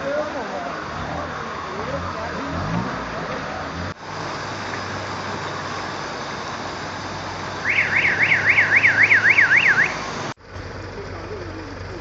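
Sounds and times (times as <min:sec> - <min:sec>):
car alarm warbling: 0:07.6 - 0:10.0.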